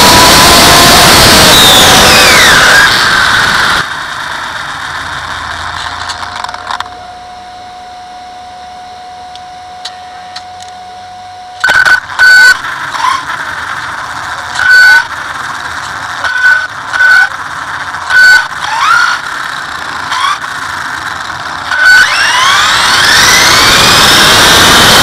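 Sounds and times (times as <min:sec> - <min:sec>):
wind and road noise: 0:00.0 - 0:06.9, 0:12.1 - 0:25.0
electric motor whine: 0:00.0 - 0:25.0.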